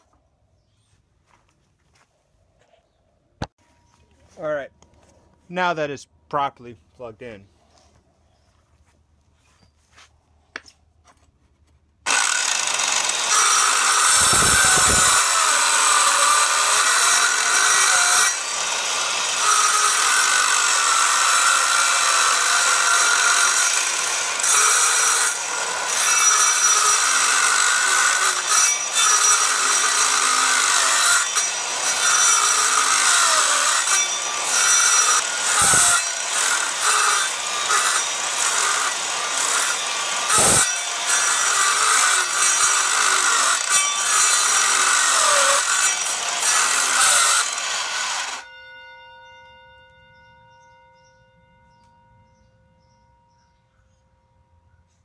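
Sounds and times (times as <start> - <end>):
circular saw cutting wood: 12.1 - 48.5.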